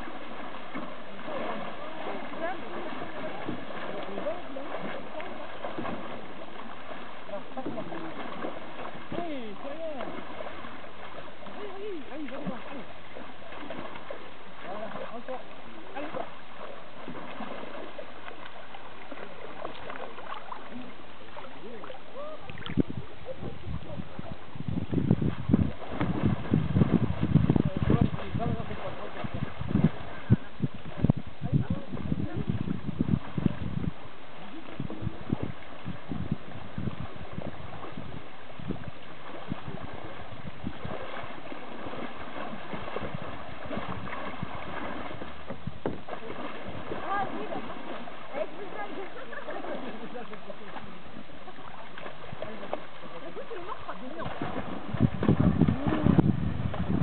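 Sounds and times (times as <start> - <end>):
water sloshing and splashing: 0.0 - 57.0
low thump on microphone: 24.6 - 28.3, 42.9 - 46.2.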